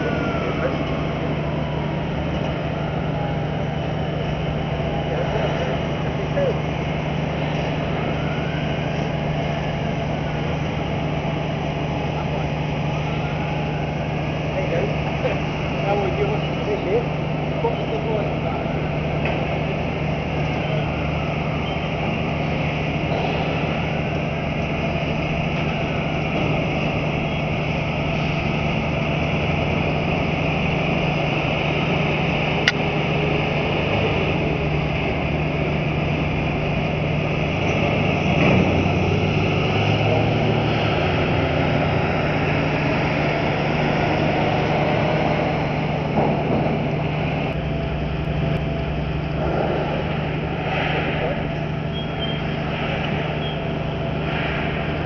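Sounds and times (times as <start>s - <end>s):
diesel engines droning: 0.0s - 55.0s.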